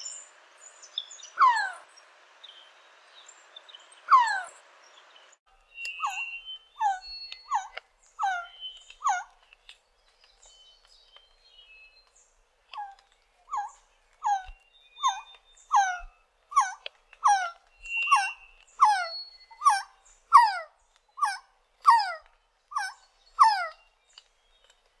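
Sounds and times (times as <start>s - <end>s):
bird whining down-slurred calls: 1.4s - 1.9s, 4.1s - 4.6s, 5.7s - 9.4s, 12.8s - 23.9s
faint high bird whistles: 5.6s - 9.4s, 12.8s - 24.2s.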